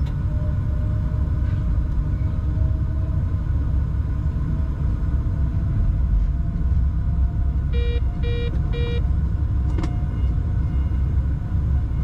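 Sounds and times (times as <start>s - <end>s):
locomotive cab rumble: 0.0s - 12.0s
short electronic beeps: 7.7s - 9.0s.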